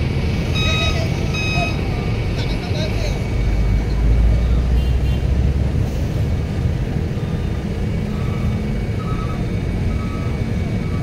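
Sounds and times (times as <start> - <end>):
truck engine rumbling: 0.0 - 11.0
reversing alarm beeping: 0.5 - 1.9, 7.2 - 11.0.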